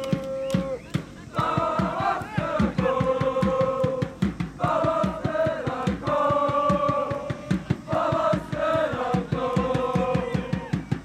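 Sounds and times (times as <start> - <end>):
crowd singing a chant: 0.0 - 11.0
steady drum beat: 0.0 - 11.0.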